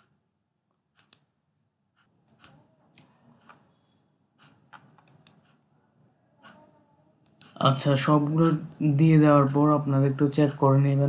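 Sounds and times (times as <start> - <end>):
computer mouse clicking: 0.0 - 1.3, 2.0 - 3.7, 4.4 - 5.6, 6.4 - 7.6.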